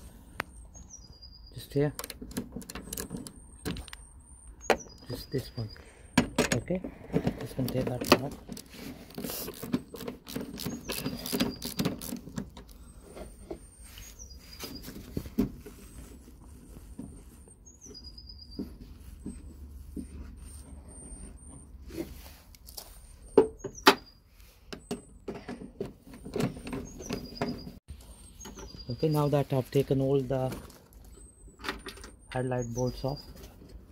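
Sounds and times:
small bird chirping: 0:00.4 - 0:01.9, 0:03.3 - 0:06.2, 0:10.4 - 0:15.2, 0:17.5 - 0:19.4, 0:26.4 - 0:30.0, 0:32.2 - 0:33.5
metal and plastic parts knocking: 0:06.2 - 0:13.6
socket ratchet clicking: 0:09.3 - 0:12.8.

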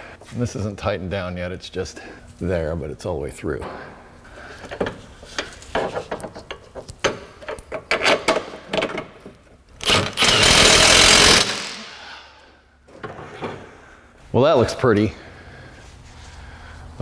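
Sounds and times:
metal clicks and knocks: 0:04.7 - 0:09.4
cordless power tool driving bolt: 0:09.8 - 0:11.8.

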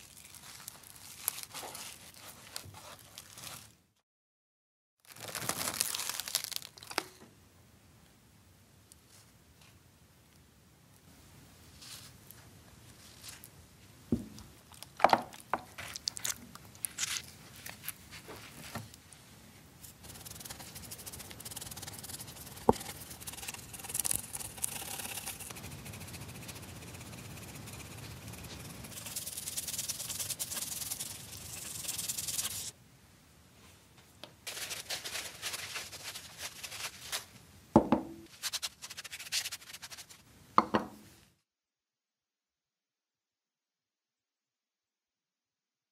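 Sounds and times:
brush scrubbing metal: 0:20.0 - 0:32.7.

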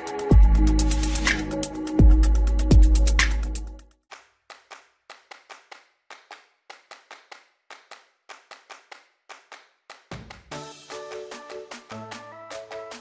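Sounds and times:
background music: 0:00.0 - 0:03.9, 0:10.5 - 0:13.0.

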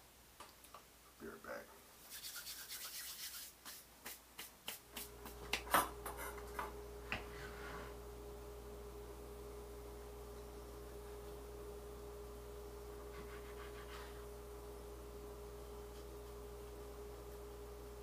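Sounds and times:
hands rubbing together: 0:02.0 - 0:05.6, 0:13.1 - 0:14.2
low hum with faint tone: 0:05.0 - 0:18.0.

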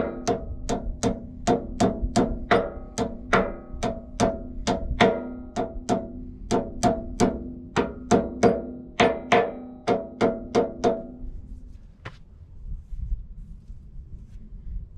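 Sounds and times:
hammer blows on metal: 0:00.0 - 0:11.4.

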